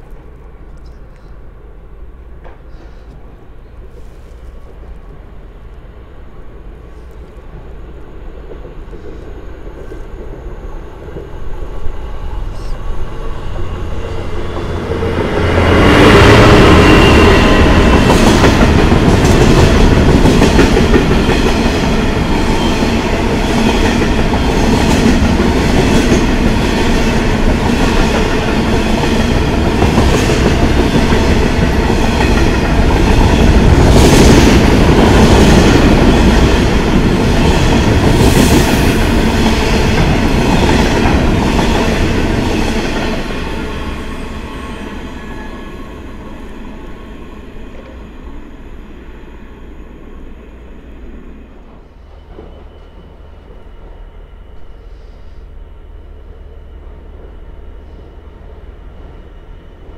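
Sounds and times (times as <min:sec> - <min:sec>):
freight train wheels knocking on rails: 0:14.4 - 0:43.7.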